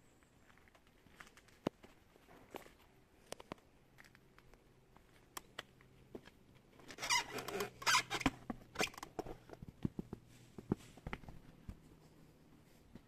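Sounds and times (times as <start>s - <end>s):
clicks and light knocks: 0.7s - 4.6s.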